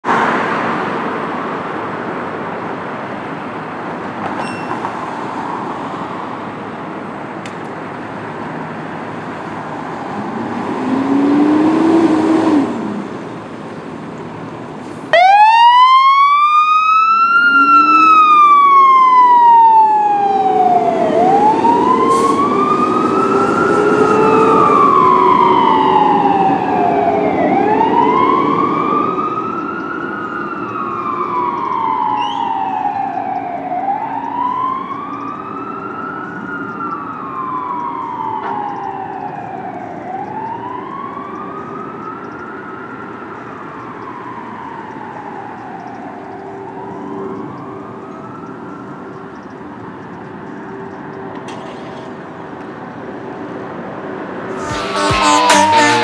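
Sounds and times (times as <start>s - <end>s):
electronic siren wailing: 15.1s - 42.4s, 54.5s - 56.0s
lower siren tone wailing: 15.1s - 49.3s, 54.5s - 56.0s
short low siren tone: 54.6s - 56.0s.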